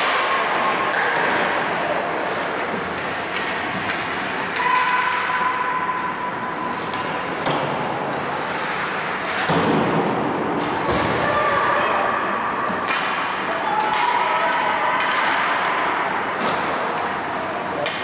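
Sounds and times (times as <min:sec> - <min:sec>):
skates scraping on ice: 0:00.0 - 0:09.5
hockey sticks and puck knocking: 0:00.0 - 0:11.2, 0:12.6 - 0:18.0.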